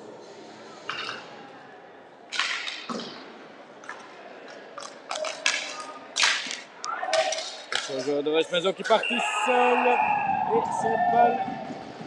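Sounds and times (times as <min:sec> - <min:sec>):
hockey sticks slapping ball: 0:04.8 - 0:08.1.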